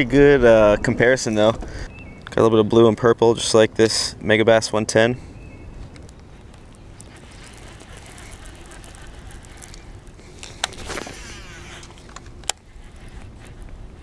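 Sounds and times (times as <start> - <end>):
wind rustle: 0.0 - 14.0
handling noise: 5.8 - 14.0
fishing reel clicking: 6.5 - 14.0.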